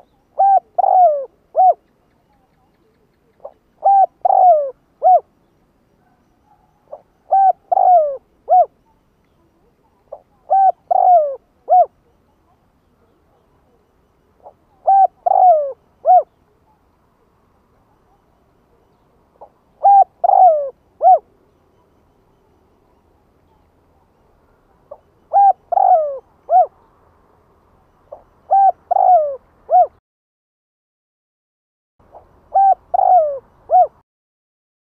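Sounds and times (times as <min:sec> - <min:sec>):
dove cooing: 0:00.0 - 0:05.3, 0:06.0 - 0:08.8, 0:09.5 - 0:12.1, 0:14.4 - 0:16.4, 0:19.4 - 0:21.9, 0:24.7 - 0:26.9, 0:28.1 - 0:30.0, 0:32.1 - 0:34.0.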